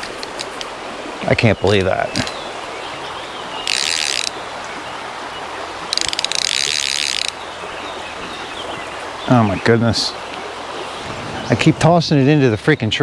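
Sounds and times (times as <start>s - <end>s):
creek water rushing: 0.0s - 13.0s
fishing reel clicking whirr: 3.6s - 4.4s, 5.9s - 7.4s.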